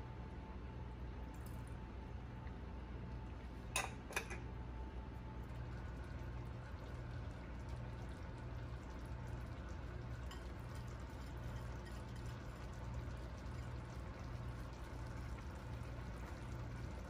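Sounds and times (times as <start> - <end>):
steady low hum: 0.0 - 17.0
kitchenware clicks: 3.8 - 4.4
juice poured into skillet: 5.4 - 17.0.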